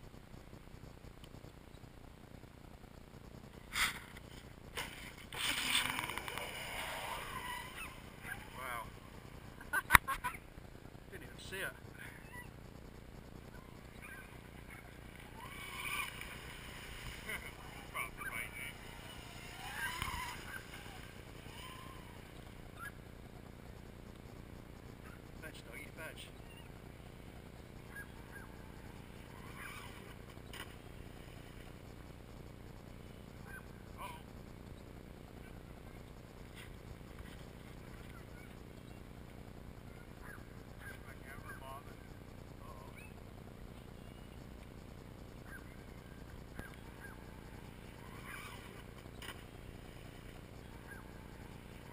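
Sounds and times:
faint low hum: 0.0 - 51.9
low outdoor rumble: 0.0 - 51.9
waterfowl calls: 4.8 - 10.5, 11.5 - 12.6, 13.5 - 23.1, 27.8 - 31.6, 39.8 - 41.8, 45.3 - 51.9.

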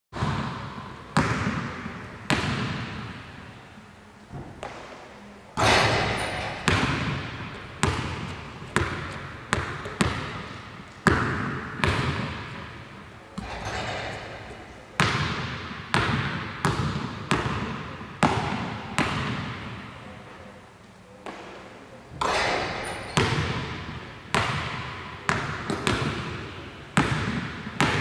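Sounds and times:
basketball bouncing on wooden floor: 0.2 - 3.2, 5.6 - 12.5, 13.4 - 19.8, 22.2 - 28.0.

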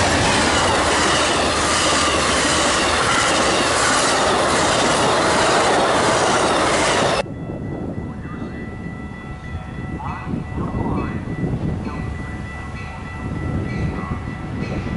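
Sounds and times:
train wheels rushing on rail: 0.0 - 7.3
faint crossing bells ringing: 7.0 - 14.9.

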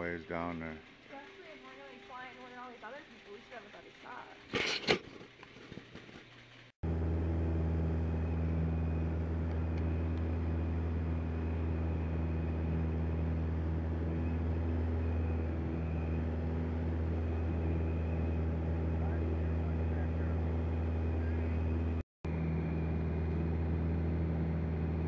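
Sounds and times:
aircraft engine and propeller droning: 6.8 - 25.0.

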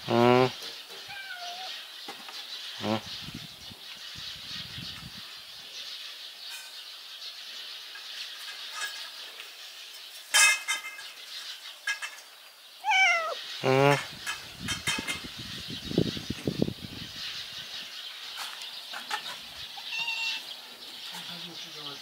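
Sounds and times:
loud bird call: 0.0 - 1.9, 2.7 - 3.4, 12.8 - 16.4, 19.0 - 22.0
birds chirping faintly: 0.0 - 22.0.

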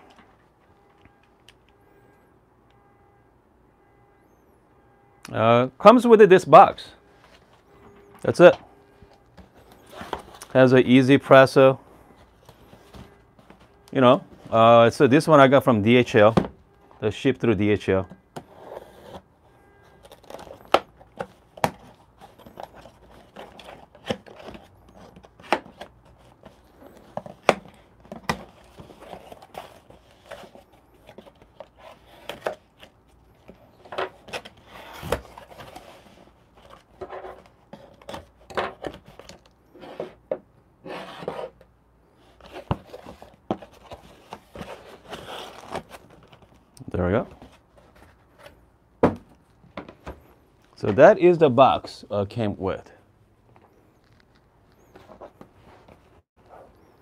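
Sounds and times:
cardboard tearing and crinkling: 42.3 - 46.6.

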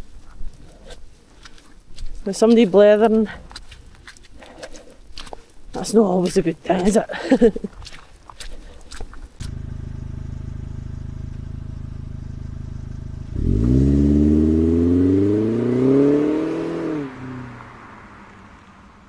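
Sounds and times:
engine running and revving: 9.4 - 19.0.

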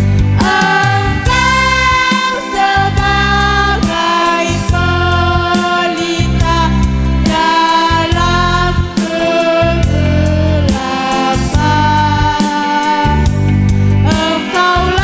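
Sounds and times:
pulsing bass accompaniment: 0.0 - 9.0, 9.6 - 12.4, 13.0 - 14.2
melodica ensemble melody: 0.4 - 4.4.

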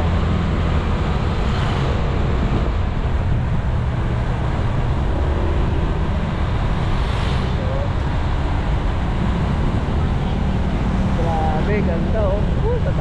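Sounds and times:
wind and road noise: 0.0 - 13.0.

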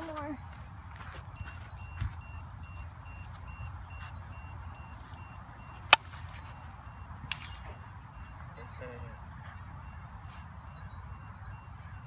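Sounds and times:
two-tone electronic beep: 1.4 - 12.0
bat hitting ball: 5.8 - 6.3.

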